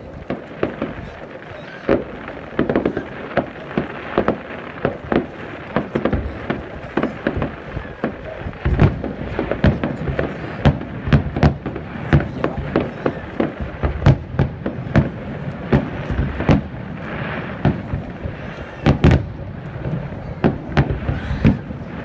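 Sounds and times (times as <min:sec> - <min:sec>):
deep firework booms: 0:00.0 - 0:22.0
fireworks bursting with sharp bangs: 0:00.0 - 0:22.0.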